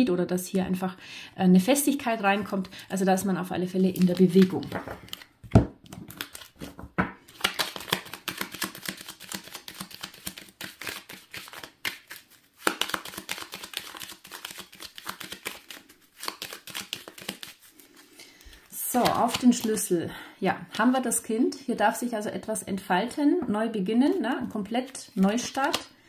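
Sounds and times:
cards being shuffled: 3.9 - 19.9, 24.4 - 25.9.

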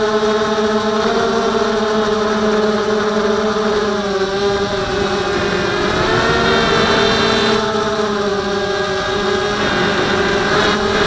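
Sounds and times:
drone motors whining: 0.0 - 11.0
low rushing noise: 4.4 - 11.0.

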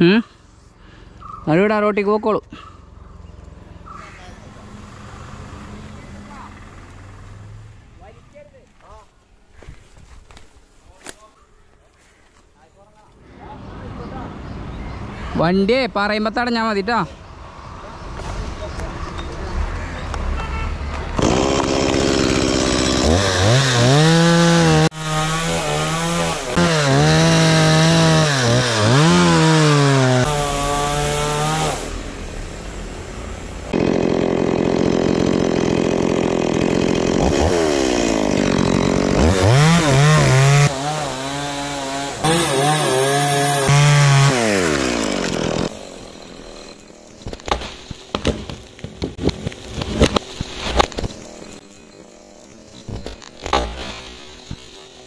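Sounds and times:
chainsaw cutting wood: 21.1 - 32.0, 33.6 - 55.0.

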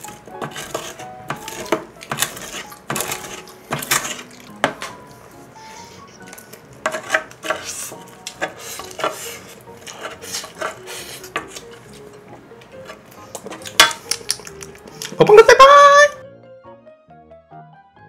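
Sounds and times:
wooden spoon scraping metal pan: 0.0 - 4.9, 5.6 - 14.0.

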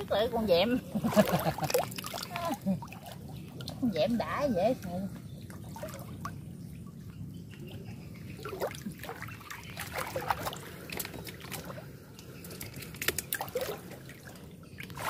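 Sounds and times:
shallow water sloshing: 0.0 - 15.0
steady low hum: 0.0 - 15.0
small splashes: 0.9 - 15.0.

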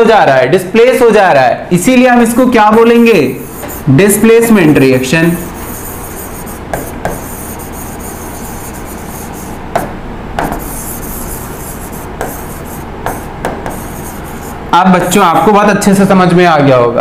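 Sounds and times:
pen rubbing on screen: 3.0 - 15.2
pen tapping on screen: 5.6 - 10.9, 11.6 - 15.1.

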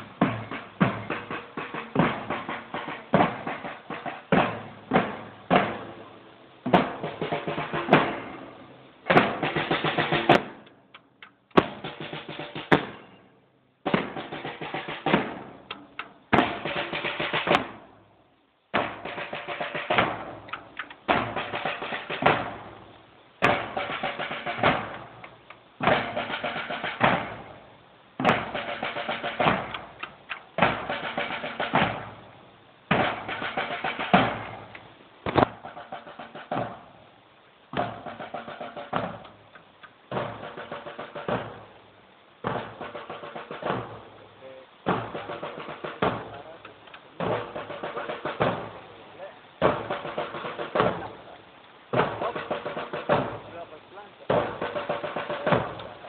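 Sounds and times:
bass drum beats: 0.0 - 6.0, 11.5 - 13.1, 13.8 - 17.9, 25.8 - 27.6, 28.2 - 32.3, 32.9 - 37.0, 37.7 - 39.4, 42.4 - 56.0
snare drum runs: 0.0 - 18.0, 18.7 - 56.0.

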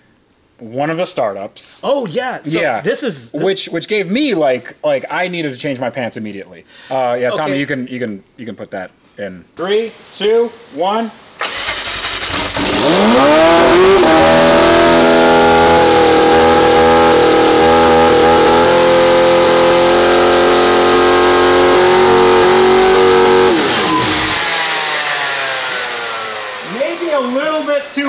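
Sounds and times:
car engine revving: 11.4 - 28.0.

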